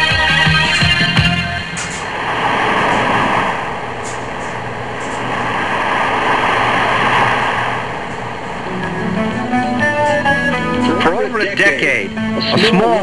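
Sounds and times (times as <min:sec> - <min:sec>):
low boat engine rumble: 0:01.4 - 0:13.0
water and wind rushing: 0:01.8 - 0:08.8.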